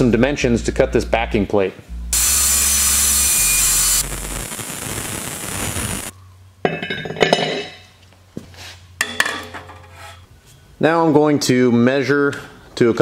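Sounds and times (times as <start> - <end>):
angle grinder cutting steel: 2.2 - 6.1
metal clinks and knocks: 6.6 - 8.0.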